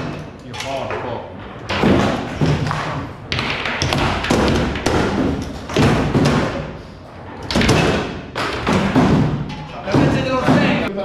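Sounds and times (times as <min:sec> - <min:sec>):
foosball rods clattering: 0:00.0 - 0:10.9
foosball ball thumps and knocks: 0:01.7 - 0:06.8, 0:07.4 - 0:10.9.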